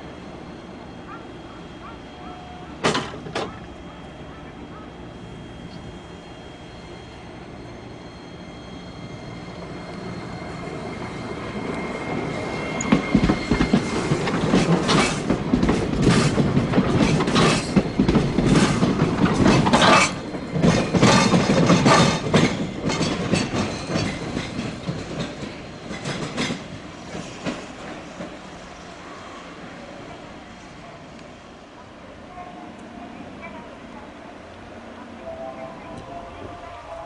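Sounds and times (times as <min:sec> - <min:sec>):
streetcar wheels clacking on rails: 0:01.1 - 0:05.0, 0:09.6 - 0:28.8.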